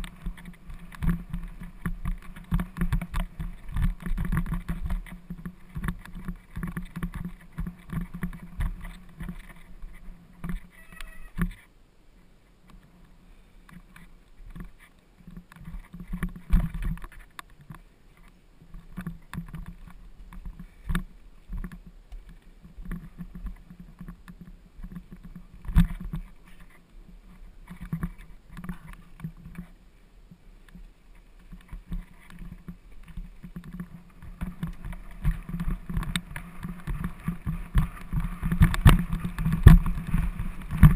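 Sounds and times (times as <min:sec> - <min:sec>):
wheels and frame knocking: 0:00.0 - 0:09.8, 0:31.4 - 0:40.9
mountain bike rattling over stones: 0:00.0 - 0:11.6, 0:13.8 - 0:17.8, 0:18.7 - 0:29.7, 0:31.3 - 0:40.9.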